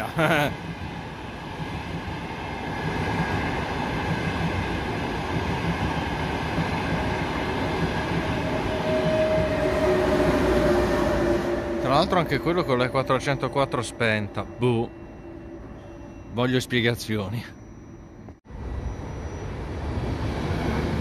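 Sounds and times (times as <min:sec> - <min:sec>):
train wheels rumbling on rails: 0:00.1 - 0:14.8.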